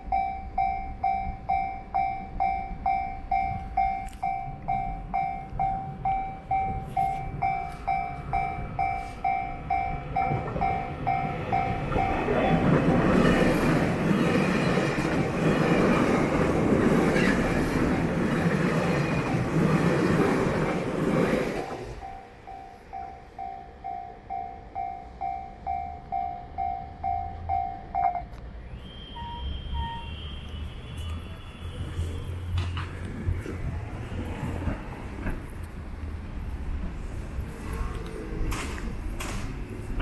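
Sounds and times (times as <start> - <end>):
level crossing alarm bell: 0.0 - 13.8, 21.9 - 28.4
train passing: 0.0 - 40.0.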